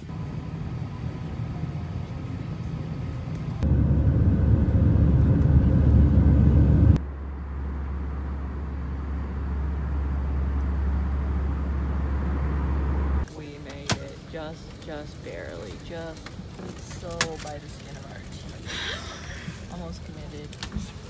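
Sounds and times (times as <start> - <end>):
jet engines rumbling: 0.0 - 13.6
cabin drone: 0.1 - 13.3.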